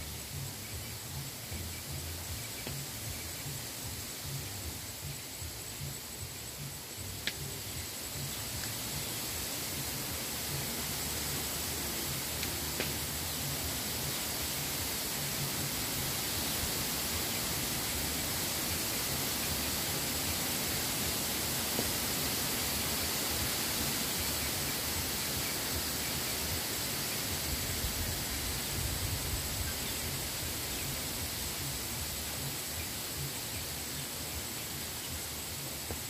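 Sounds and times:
wind rustling bamboo leaves: 0:00.0 - 0:36.0.

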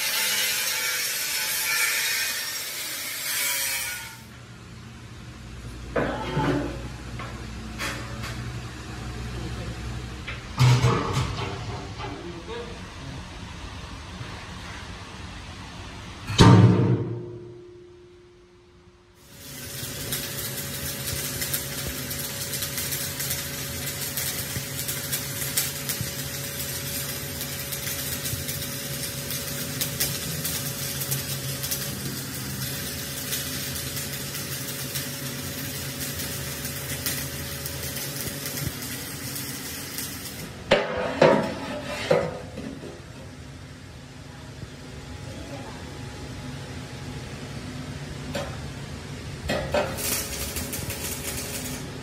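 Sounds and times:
arc welding crackle: 0:00.0 - 0:04.4, 0:19.1 - 0:40.7, 0:49.5 - 0:52.0
low machine hum: 0:04.3 - 0:52.0.

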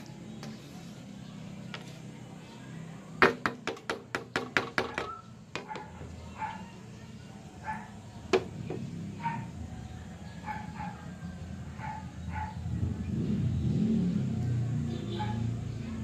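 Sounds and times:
distant dog barking: 0:04.9 - 0:06.8, 0:07.6 - 0:08.2, 0:09.0 - 0:12.9, 0:14.9 - 0:15.9.

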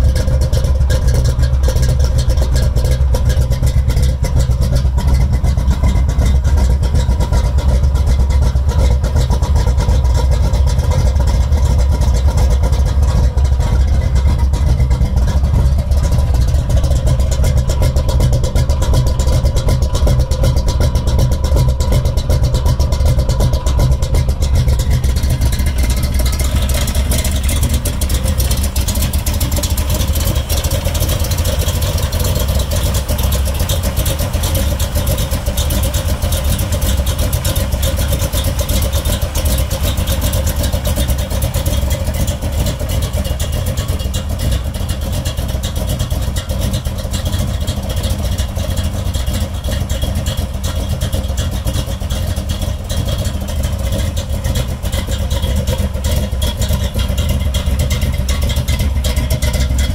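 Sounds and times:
car engine lumpy idle: 0:00.0 - 0:59.9.

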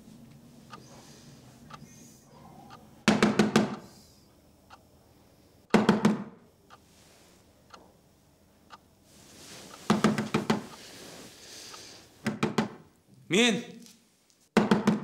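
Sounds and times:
knocking on a door: 0:03.1 - 0:03.8, 0:05.7 - 0:06.3, 0:09.9 - 0:10.6, 0:12.2 - 0:12.8, 0:14.6 - 0:15.0.

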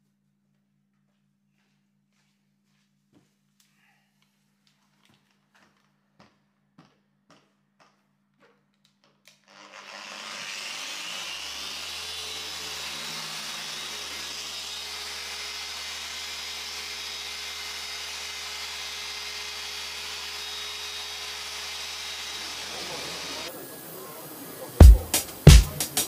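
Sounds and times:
electric polishing machine running: 0:09.6 - 0:26.0.

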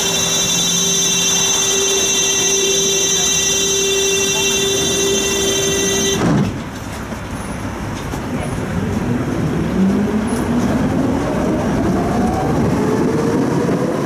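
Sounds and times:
door-closing warning buzzer: 0:00.0 - 0:06.3
tram doors shutting knock: 0:00.0 - 0:09.5
tram traction motor whine: 0:00.0 - 0:14.0.

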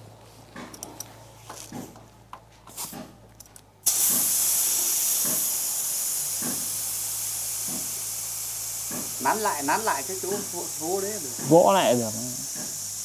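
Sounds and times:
air hissing from tyre: 0:02.7 - 0:03.2, 0:03.8 - 0:13.0.

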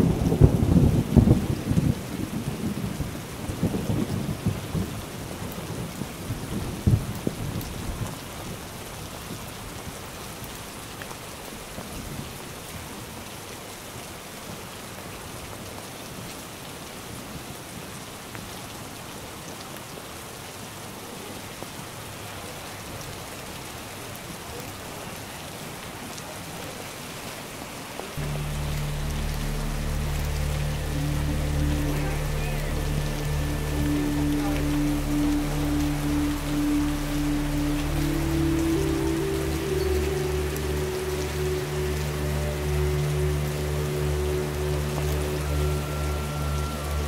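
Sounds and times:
heavy rain on boardwalks: 0:00.0 - 0:47.0
low rumbling thumps: 0:28.2 - 0:37.0
music with low notes: 0:28.2 - 0:47.0.

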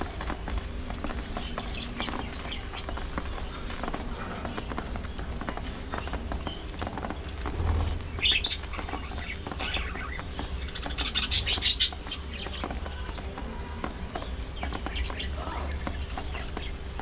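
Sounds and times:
beaks picking at seed: 0:00.0 - 0:17.0.

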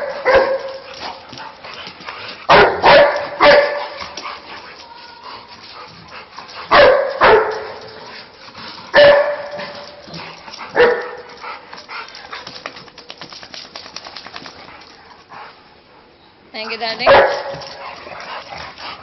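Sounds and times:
dog barking: 0:00.0 - 0:00.8, 0:02.5 - 0:04.0, 0:06.7 - 0:07.8, 0:09.0 - 0:09.5, 0:10.8 - 0:11.2, 0:17.0 - 0:17.6.

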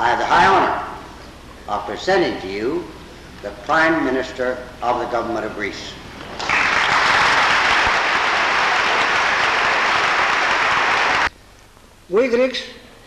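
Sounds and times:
audience applause: 0:06.3 - 0:11.3.

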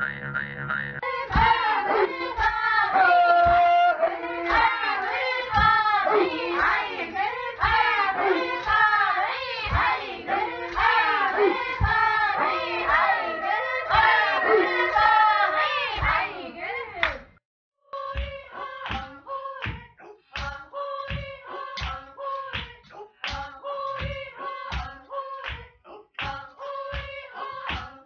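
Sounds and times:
women singing together: 0:01.0 - 0:28.0
sharp hand clap: 0:04.4 - 0:05.8, 0:20.4 - 0:25.6, 0:26.2 - 0:28.0.

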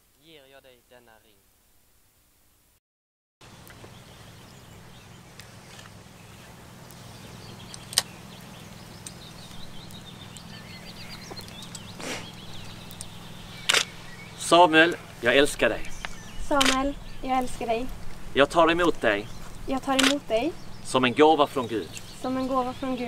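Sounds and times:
steady low hum: 0:03.4 - 0:23.0
sharp clicks: 0:07.6 - 0:08.2, 0:09.0 - 0:10.6, 0:11.2 - 0:14.1, 0:15.8 - 0:18.2, 0:19.6 - 0:20.6.

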